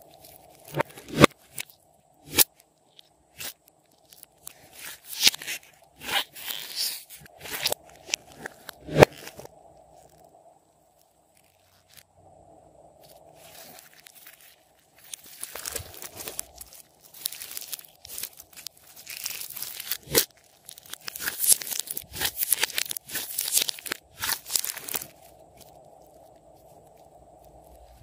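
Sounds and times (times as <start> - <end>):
faint steady hum: 0.0 - 28.0
slime crackling and popping: 13.6 - 27.1.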